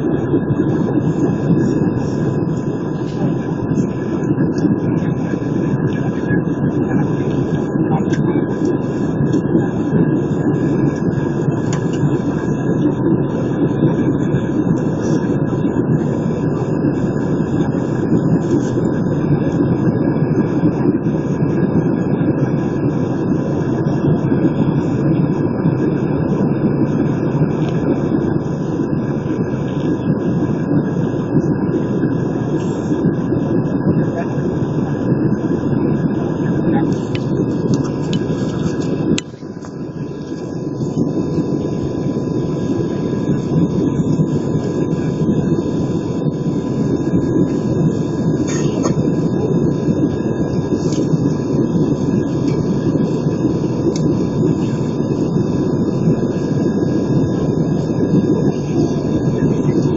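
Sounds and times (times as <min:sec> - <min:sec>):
aircraft cabin engine rumble: 0:00.0 - 0:59.9
faint steady whine: 0:00.0 - 0:59.9.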